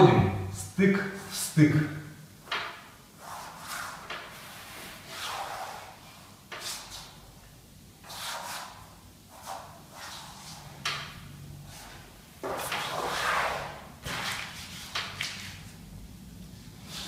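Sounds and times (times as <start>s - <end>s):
wallpaper swishing on wall: 2.4s - 7.3s, 8.0s - 15.9s, 16.5s - 17.0s.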